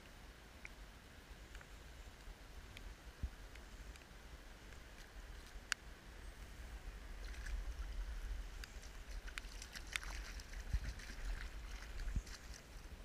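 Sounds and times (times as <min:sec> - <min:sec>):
water splashing and sloshing: 0:07.0 - 0:13.0
raindrops pattering on water: 0:07.2 - 0:13.0.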